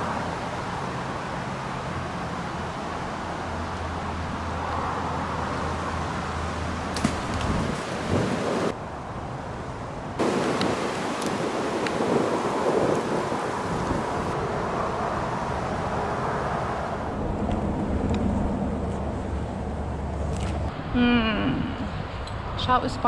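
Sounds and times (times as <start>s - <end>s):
wind blowing through pine trees: 0.0s - 22.8s
low rumble: 17.0s - 22.2s.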